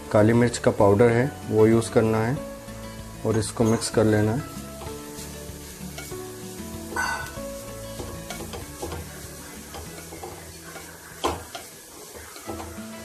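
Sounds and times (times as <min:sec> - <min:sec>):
vegetables sizzling in oil: 0:00.0 - 0:13.0
spatula scraping a pan: 0:04.8 - 0:13.0.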